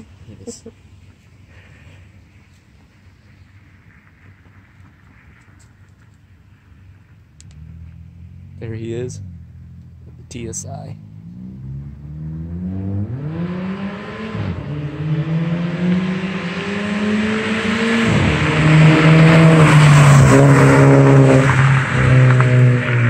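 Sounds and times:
car accelerating hard past: 11.0s - 23.0s.

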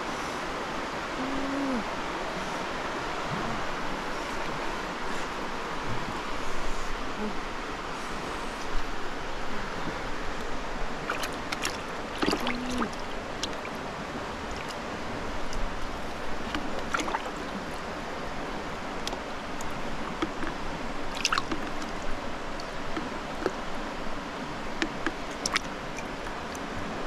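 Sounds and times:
steady watery hiss: 0.0s - 27.0s
water splashing in a bucket: 11.0s - 13.8s, 16.4s - 17.8s, 20.2s - 22.0s, 24.8s - 26.6s.

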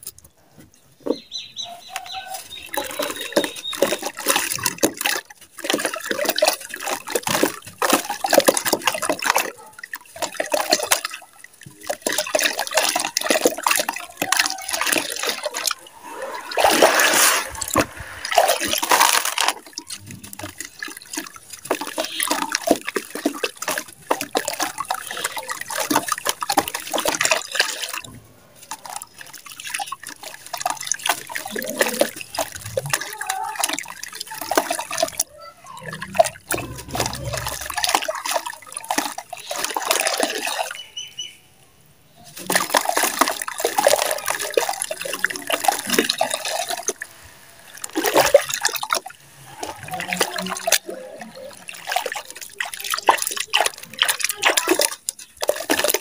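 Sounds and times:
water splashing and sloshing: 0.0s - 41.6s, 42.2s - 56.0s
gritty mud crumbling: 30.0s - 35.2s, 36.0s - 40.4s.

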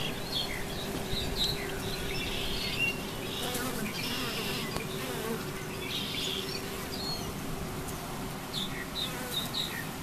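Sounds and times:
bird chirping: 0.0s - 7.4s
bees humming: 0.0s - 10.0s.

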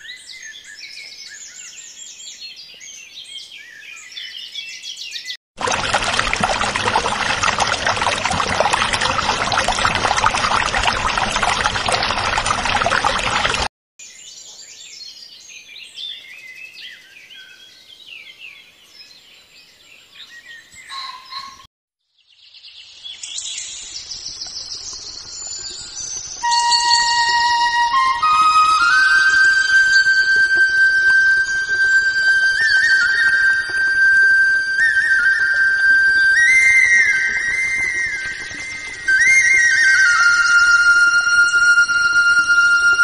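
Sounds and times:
water gushing onto soil: 5.6s - 13.7s, 36.2s - 43.0s
birds chirping: 20.0s - 21.6s.

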